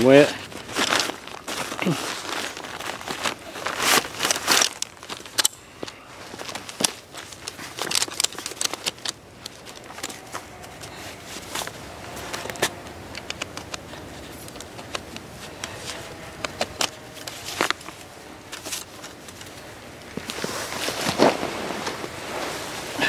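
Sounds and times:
chair scraping on snow: 20.2 - 23.0.

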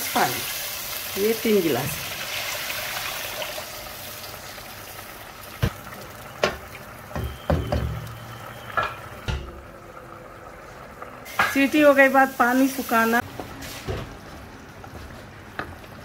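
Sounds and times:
oil sizzling and hissing: 0.0 - 9.3, 10.5 - 14.2
wooden spoon knocking pan: 6.4 - 8.1.

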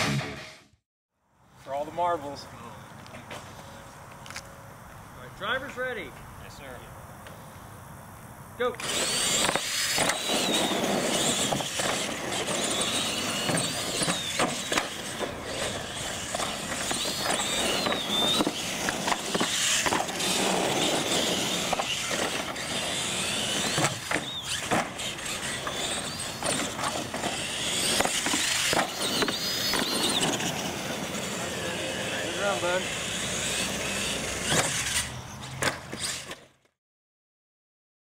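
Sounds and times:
tires rolling on concrete: 1.6 - 36.7
toy truck motors whining: 8.6 - 36.7.

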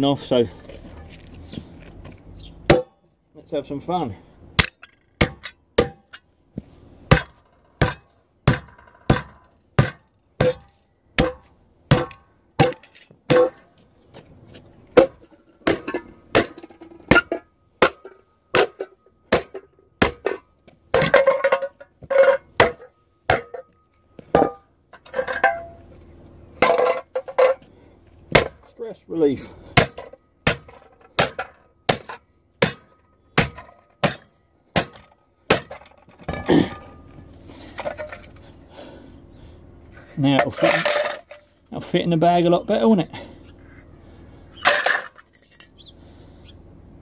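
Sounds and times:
crumpling metal clatter: 40.4 - 41.5, 44.6 - 45.8.

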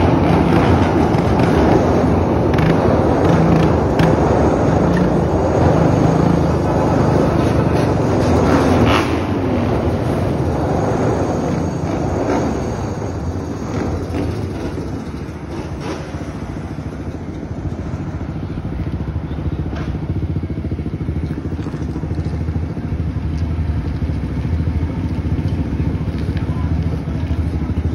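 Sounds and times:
engine revving: 0.0 - 14.7.

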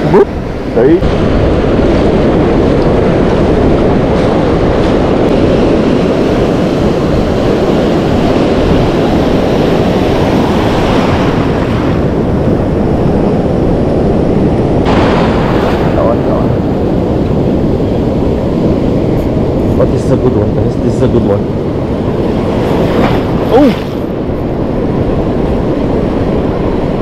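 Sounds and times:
wind buffeting microphone: 0.0 - 27.0
surf breaking: 14.8 - 19.9, 21.2 - 24.2.

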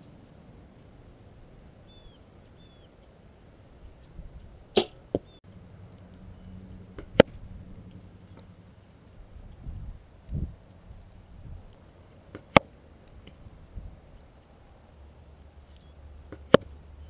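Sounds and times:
faint bird chirps: 1.8 - 3.1, 5.2 - 5.4, 6.2 - 6.8, 15.6 - 16.1.

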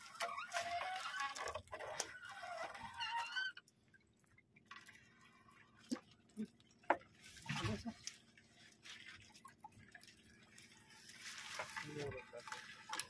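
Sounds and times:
wet net hauled into boat: 0.0 - 3.7, 7.0 - 13.0
water dripping and splatting: 0.0 - 13.0.

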